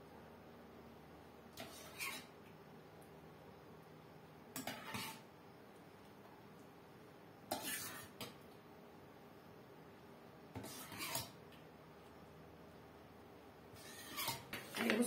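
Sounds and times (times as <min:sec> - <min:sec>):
metal ladle scraping pot: 0:01.6 - 0:02.3, 0:04.6 - 0:05.2, 0:07.5 - 0:08.2, 0:10.6 - 0:11.4, 0:13.8 - 0:14.9.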